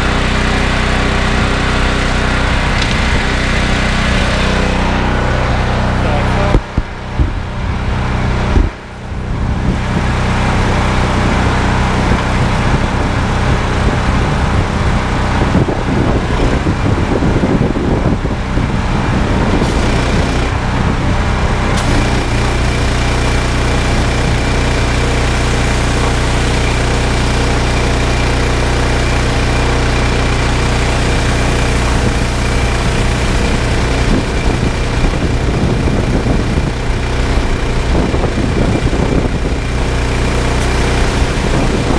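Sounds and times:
petrol engine running under load: 0.0s - 41.9s
water spraying: 19.4s - 20.7s, 21.8s - 41.9s.

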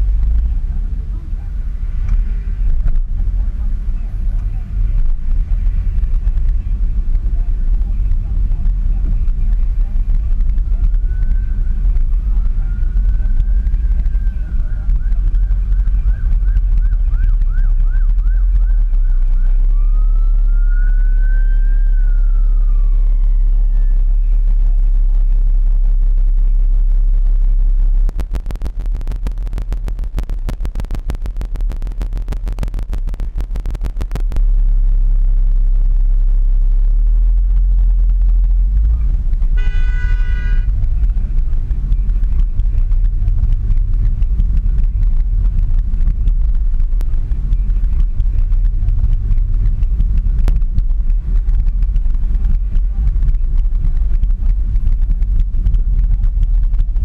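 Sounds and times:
car engine and road rumble: 0.0s - 57.0s
rapid clicks: 28.0s - 34.5s
car horn: 39.5s - 40.9s.

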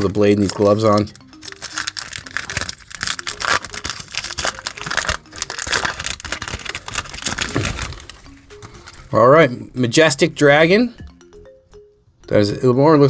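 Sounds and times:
foil wrapper crinkling and tearing: 0.2s - 8.3s
cards rustling: 0.2s - 9.1s.

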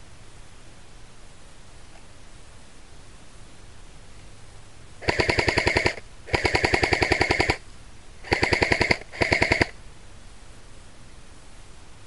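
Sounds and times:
airsoft rifle automatic fire: 5.0s - 7.6s, 8.2s - 9.8s.

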